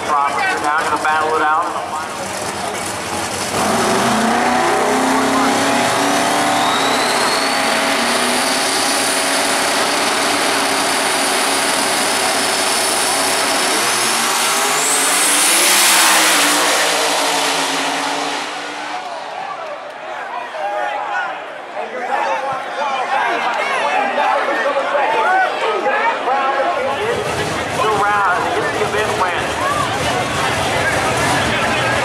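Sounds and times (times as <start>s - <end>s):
drag race car engines revving: 0.0s - 20.0s, 26.2s - 32.0s.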